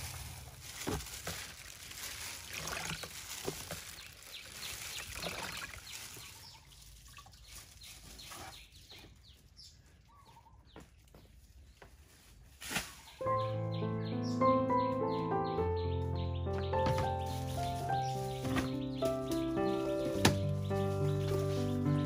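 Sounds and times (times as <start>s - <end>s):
water sloshing and dripping: 0.7s - 8.2s
birds chirping: 2.6s - 22.0s.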